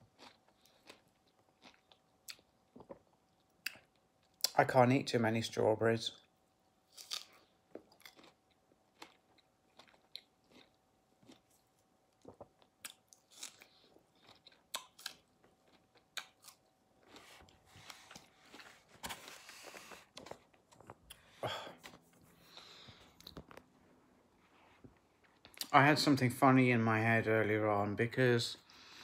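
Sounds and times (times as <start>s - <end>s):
chewing strawberries: 0.0s - 4.6s, 6.9s - 18.9s.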